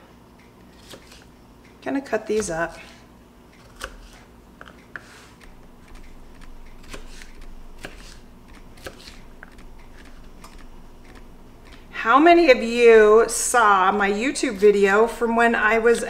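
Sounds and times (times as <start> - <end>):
knife slicing pepper: 0.7 - 1.3, 2.3 - 3.0, 3.6 - 11.9.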